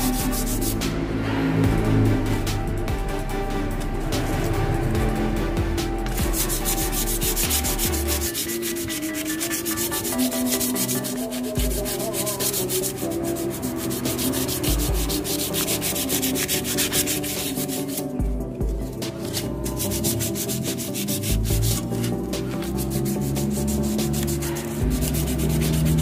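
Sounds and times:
sandpaper rubbing on metal: 0.0s - 0.9s, 6.1s - 18.2s, 18.8s - 26.0s.

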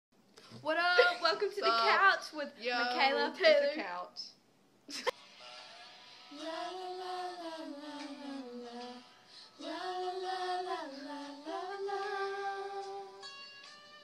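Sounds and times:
girls singing together: 6.3s - 13.3s.

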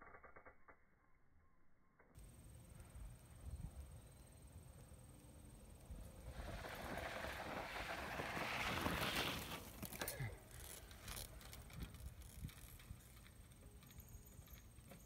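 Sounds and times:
bicycle tyres crunching on gravel: 5.7s - 15.0s.

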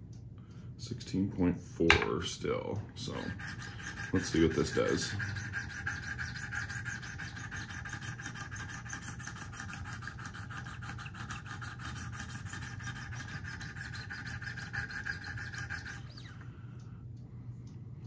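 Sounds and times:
sharpening stone rubbing knife edge: 3.1s - 16.3s.

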